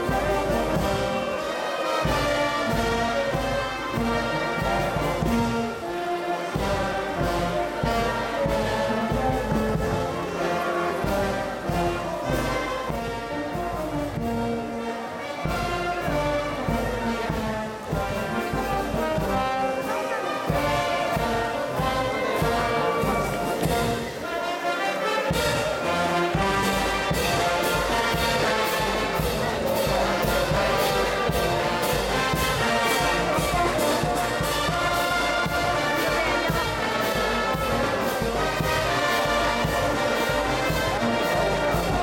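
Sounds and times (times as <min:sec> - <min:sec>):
steady drum beat: 0:00.0 - 0:14.8, 0:15.4 - 0:24.3, 0:25.3 - 0:42.0
brass band playing: 0:00.0 - 0:42.0.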